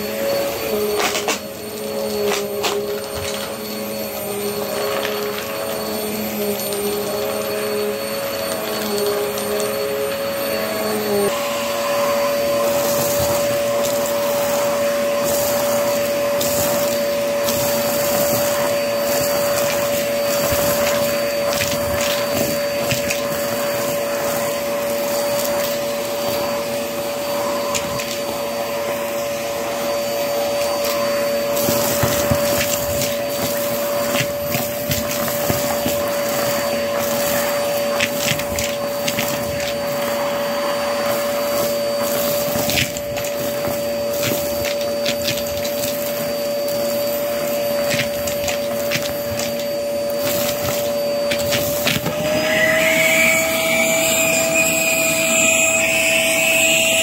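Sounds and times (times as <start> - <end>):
vacuum cleaner running: 0.0 - 57.0
debris rattling up hose: 11.8 - 26.6, 30.5 - 54.7.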